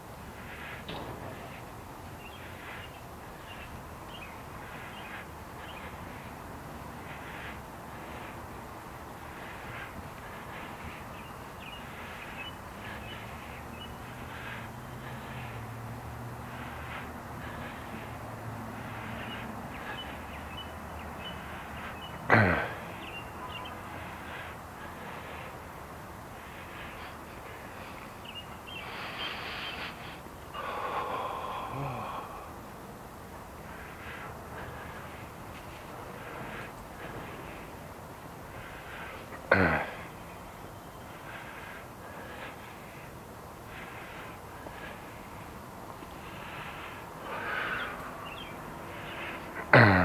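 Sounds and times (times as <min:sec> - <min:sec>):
low background rumble: 0:00.0 - 0:49.6
birds chirping: 0:00.0 - 0:50.0
faint bird chirps: 0:22.9 - 0:24.5, 0:26.8 - 0:30.0, 0:40.0 - 0:41.8, 0:47.2 - 0:49.4.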